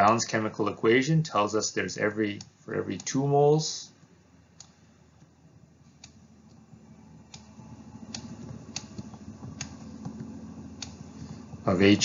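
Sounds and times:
faint low rumble: 0.0s - 12.0s.

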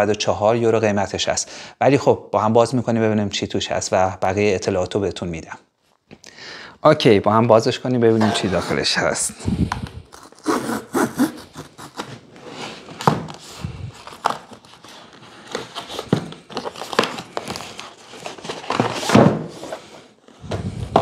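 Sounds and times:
packaging rustling: 9.6s - 21.0s
packaging knocks and scrapes: 11.9s - 21.0s.

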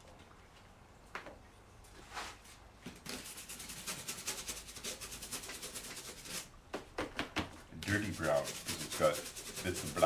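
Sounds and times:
stiff paintbrush scrubbing: 3.0s - 6.5s, 7.8s - 10.0s.

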